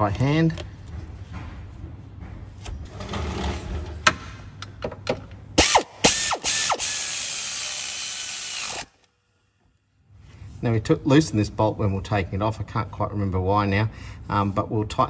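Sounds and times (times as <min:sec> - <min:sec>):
pneumatic air ratchet: 0:05.6 - 0:09.0.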